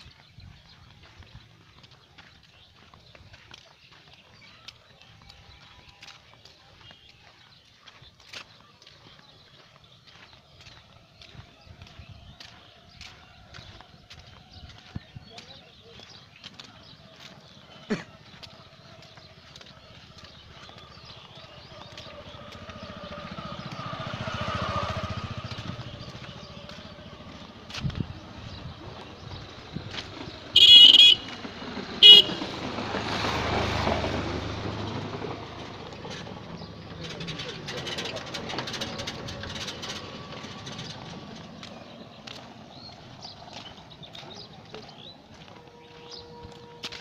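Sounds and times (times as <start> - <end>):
motorcycle engine passing by: 15.7 - 47.0.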